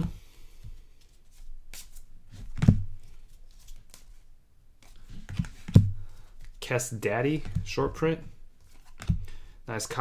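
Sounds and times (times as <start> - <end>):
cards rustling and sliding: 0.0 - 6.6, 7.2 - 10.0.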